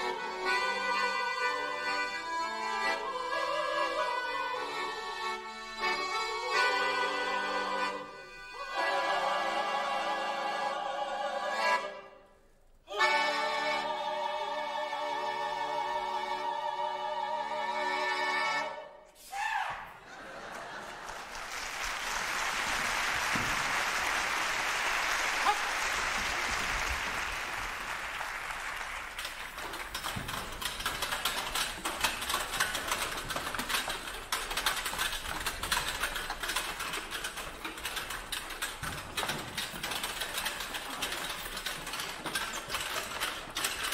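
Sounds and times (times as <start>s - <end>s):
audience applause: 20.2s - 30.1s
dense irregular clicking: 28.4s - 43.9s.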